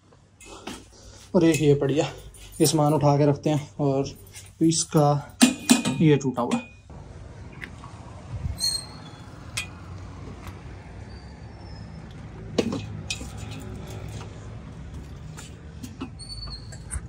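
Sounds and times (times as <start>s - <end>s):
metal stools clinking and knocking: 5.4s - 6.8s, 12.6s - 13.8s.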